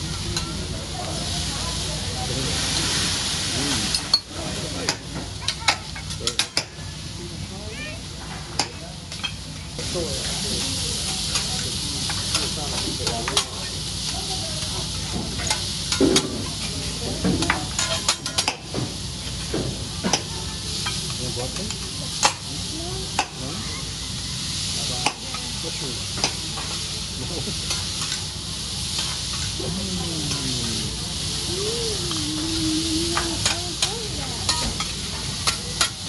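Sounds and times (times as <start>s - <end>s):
meat sizzling on a griddle: 0.0s - 36.0s
metal utensils tapping griddle: 33.4s - 36.0s.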